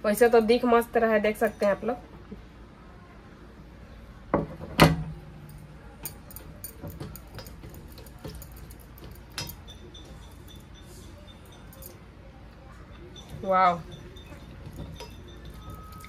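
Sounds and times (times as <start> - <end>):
dishes and cutlery clinking: 5.4 - 12.1, 12.9 - 16.0.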